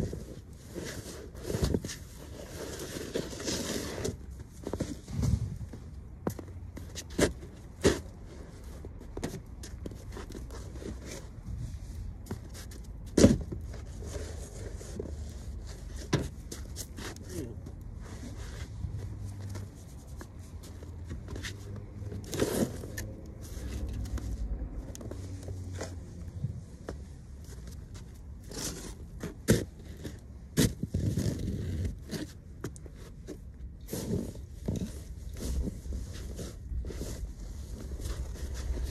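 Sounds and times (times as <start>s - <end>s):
snow shovel scraping snow: 2.3s - 4.2s, 33.9s - 38.8s.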